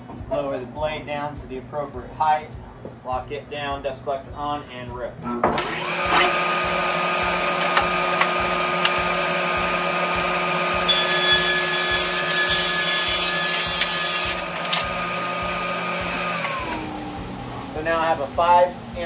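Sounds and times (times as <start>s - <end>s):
saw blade cutting wood: 5.6s - 16.9s
table saw running: 5.6s - 17.7s
dust collector running: 5.6s - 19.0s.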